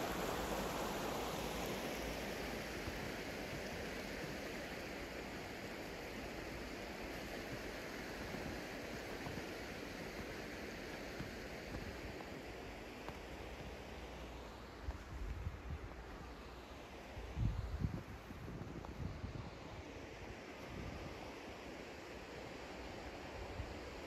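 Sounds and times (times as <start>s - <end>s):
river rapids rushing over rocks: 0.0s - 14.8s.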